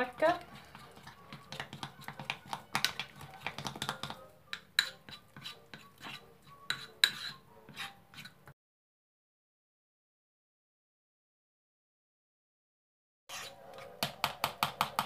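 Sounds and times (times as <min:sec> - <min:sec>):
spoon scraping ceramic bowl: 0:00.0 - 0:08.5, 0:13.3 - 0:14.0.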